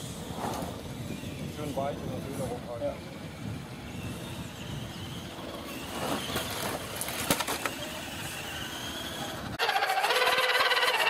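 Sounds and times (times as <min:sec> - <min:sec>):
electric motor and gear whine: 0:00.0 - 0:11.0
scraping clatter: 0:05.7 - 0:09.2
toy truck hitting ground: 0:05.9 - 0:08.8.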